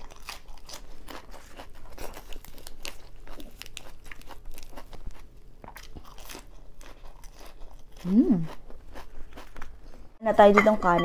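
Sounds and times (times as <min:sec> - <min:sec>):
lettuce leaf tearing: 0:00.0 - 0:04.7
lettuce being chewed: 0:00.0 - 0:10.2.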